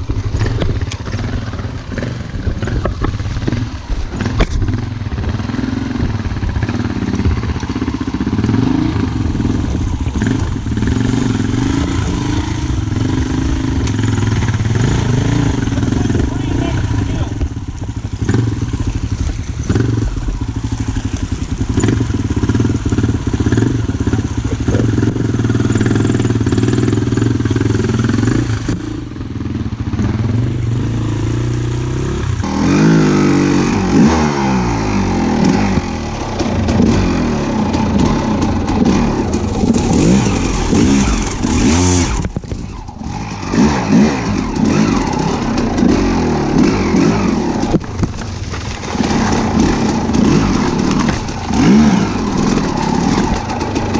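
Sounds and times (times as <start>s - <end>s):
small engine revving: 29.7s - 53.9s.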